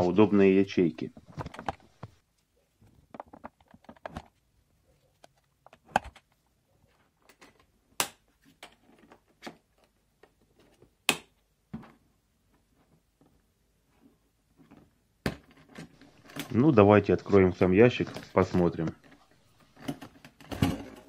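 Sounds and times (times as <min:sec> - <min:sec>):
plastic box clicks and knocks: 0:03.1 - 0:04.3.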